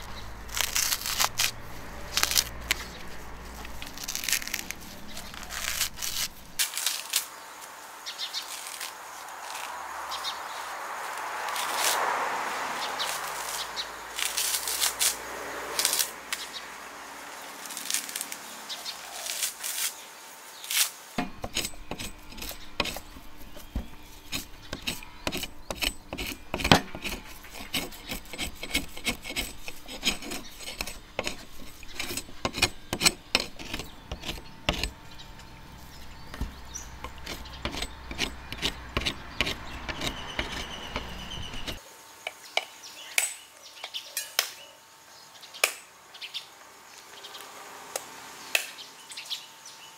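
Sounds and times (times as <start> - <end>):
knife scraping coconut husk: 0.0 - 7.4, 8.2 - 10.2, 11.2 - 16.4, 17.6 - 18.4, 19.0 - 20.0, 20.6 - 41.8.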